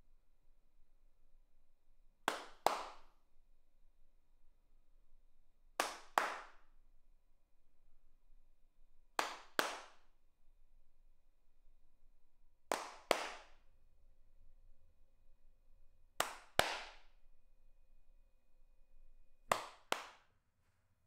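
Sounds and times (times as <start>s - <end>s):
cupped hand claps with echo: 2.2s - 3.3s, 5.7s - 6.8s, 9.1s - 10.2s, 12.7s - 13.8s, 16.2s - 17.2s, 19.4s - 20.4s.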